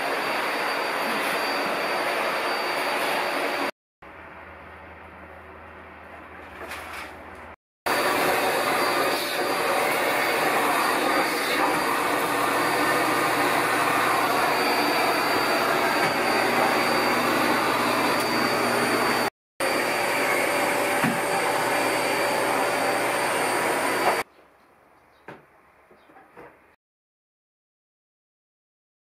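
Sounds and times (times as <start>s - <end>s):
vacuum cleaner running: 0.0s - 3.7s, 7.9s - 24.3s.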